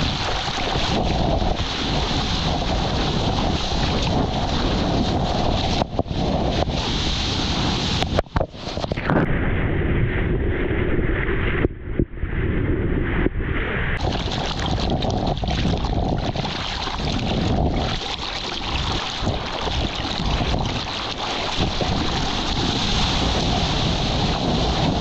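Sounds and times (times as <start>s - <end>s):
surfboard splashing through water: 0.0s - 9.0s, 14.0s - 25.0s
muffled churning water underwater: 0.0s - 25.0s
wind on microphone: 0.0s - 25.0s.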